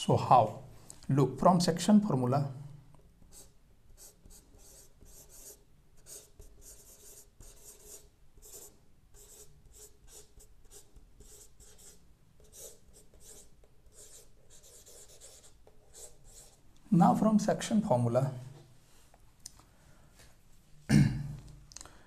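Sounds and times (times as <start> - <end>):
chalk writing on a chalkboard: 3.3 - 16.6.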